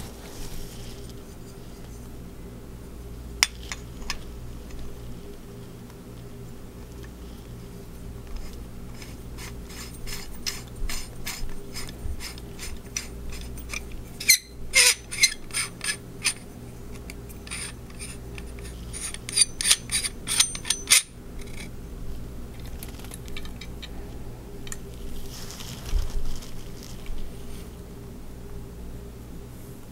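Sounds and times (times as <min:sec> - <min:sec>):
metal threads clicking and scraping: 0:08.3 - 0:21.7.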